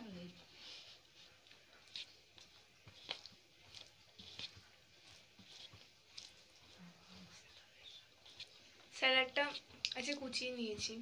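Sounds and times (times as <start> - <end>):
mouth clicks while chewing: 9.8 - 10.1.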